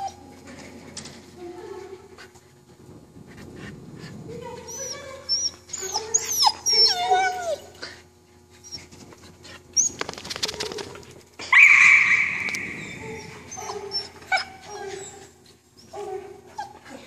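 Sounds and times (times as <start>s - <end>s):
dog whining and yelping: 0.0s - 0.2s, 4.7s - 8.0s, 11.5s - 16.8s.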